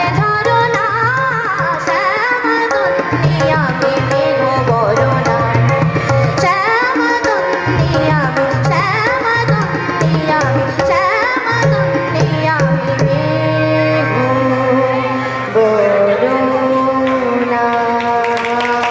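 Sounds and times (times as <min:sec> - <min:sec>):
tabla strokes: 0:00.0 - 0:15.1
harmonium: 0:00.0 - 0:18.9.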